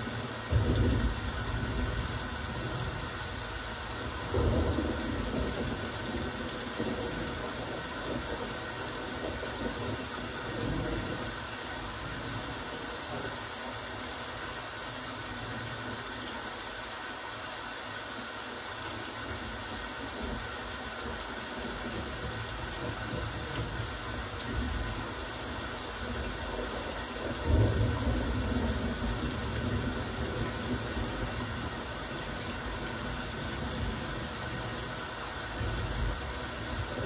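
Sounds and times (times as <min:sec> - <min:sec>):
steady rain falling: 0:00.0 - 0:37.0.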